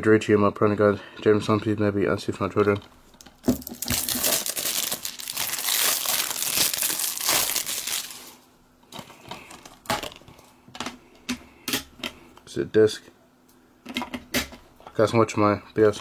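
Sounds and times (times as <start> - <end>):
plastic wrap tearing and crinkling: 3.2 - 8.5.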